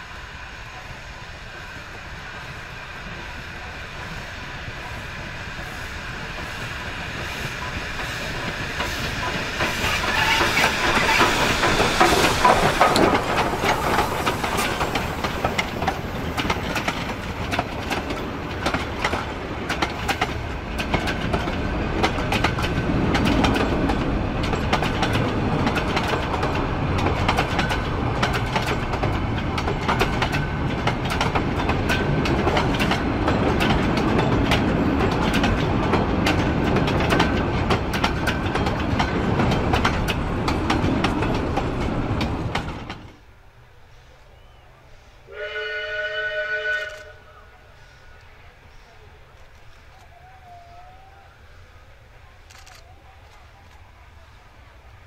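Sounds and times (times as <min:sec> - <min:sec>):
steam locomotive passing: 0:00.0 - 0:55.0
wheels clicking over rail joints: 0:06.3 - 0:43.3.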